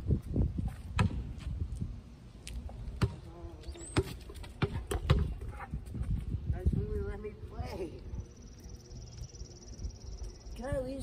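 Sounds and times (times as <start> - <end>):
basketball bouncing on concrete: 0.7 - 1.5, 2.9 - 6.2.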